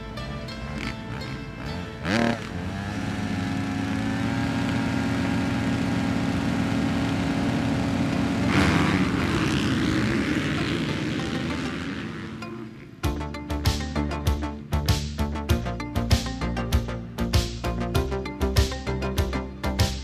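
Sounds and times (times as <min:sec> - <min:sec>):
motocross bikes revving: 0:00.5 - 0:13.2.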